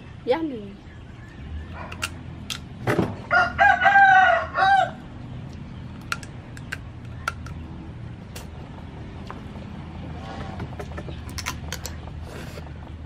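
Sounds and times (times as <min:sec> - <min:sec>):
rooster crowing: 0:03.3 - 0:05.1.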